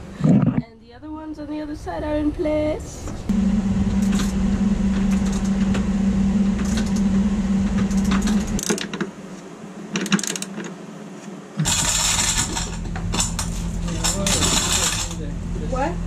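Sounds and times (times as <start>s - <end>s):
low mechanical hum: 0.0s - 16.0s
loud metallic clatter: 11.6s - 15.3s.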